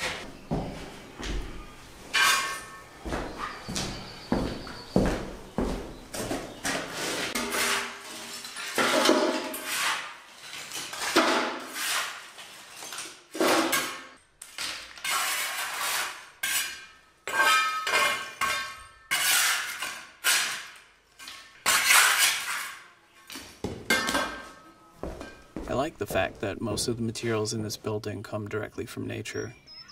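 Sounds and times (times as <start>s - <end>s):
trowel scraping plaster on tiles: 6.8s - 13.8s, 14.5s - 22.9s
pieces clinking into metal pot: 7.4s - 9.7s, 16.5s - 20.7s.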